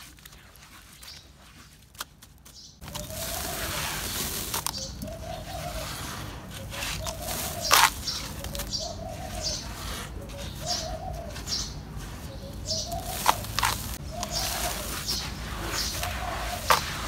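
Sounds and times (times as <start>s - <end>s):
dove cooing: 2.9s - 17.0s.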